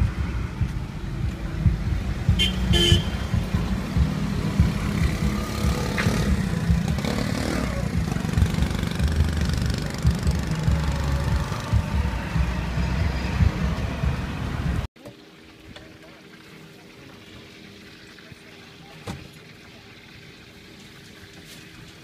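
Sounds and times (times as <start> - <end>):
passing motor vehicles rumble: 0.0 - 14.9
car horn toot: 2.4 - 3.4.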